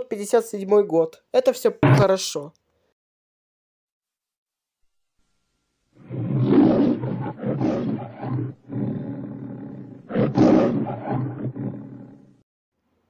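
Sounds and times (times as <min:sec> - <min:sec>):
lion roaring and growling: 0:06.0 - 0:12.4.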